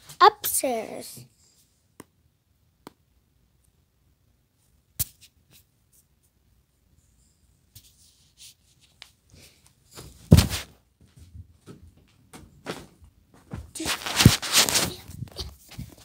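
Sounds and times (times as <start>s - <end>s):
handling rustles and knocks: 9.9s - 16.0s.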